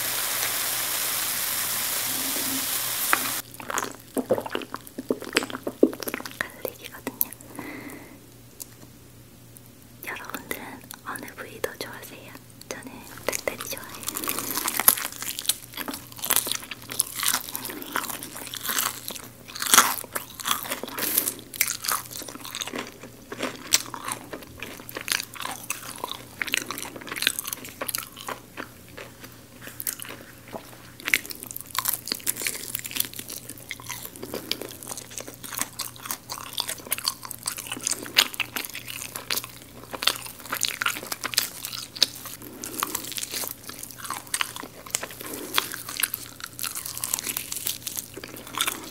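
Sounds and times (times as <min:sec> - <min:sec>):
crunchy chewing: 0:12.7 - 0:48.9.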